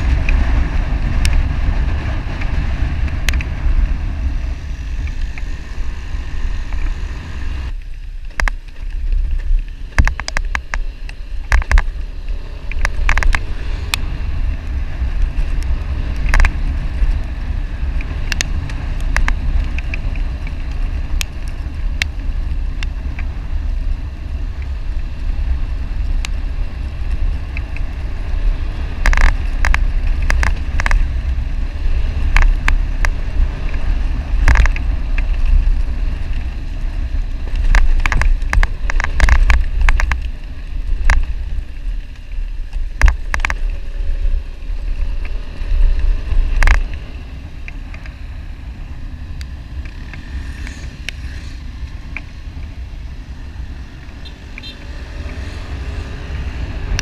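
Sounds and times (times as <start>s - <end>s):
motorcycle engine and road noise: 0.0s - 57.0s
wind buffeting microphone: 0.0s - 57.0s.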